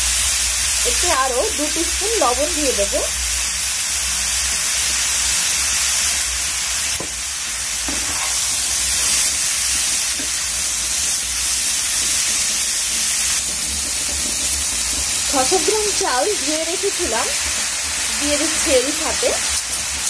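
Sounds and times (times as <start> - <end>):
oil frying hiss: 0.0 - 20.0
spatula knocking and scraping pan: 7.8 - 8.4, 13.4 - 15.3.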